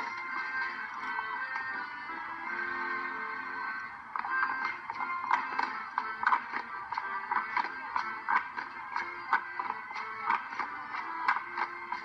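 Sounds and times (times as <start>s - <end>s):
dance music with steady beat: 0.0s - 12.0s
sharp regular clacks: 4.1s - 12.0s.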